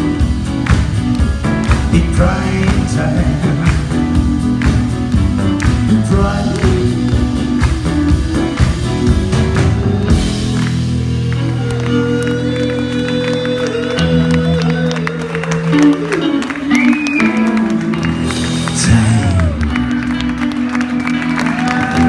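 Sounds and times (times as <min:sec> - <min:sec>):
bass notes: 0:00.0 - 0:22.0
drums: 0:00.0 - 0:22.0
electric guitars: 0:00.0 - 0:22.0.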